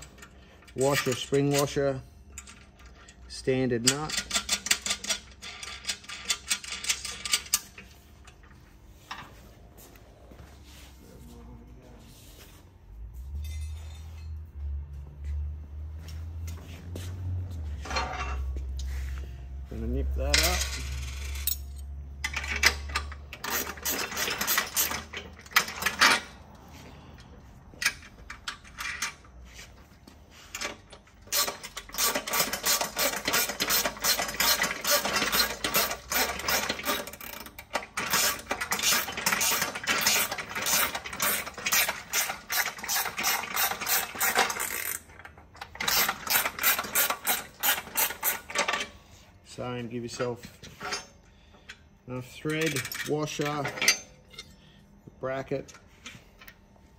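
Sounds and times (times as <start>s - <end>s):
metallic clicks of hardware: 52.4s - 54.6s.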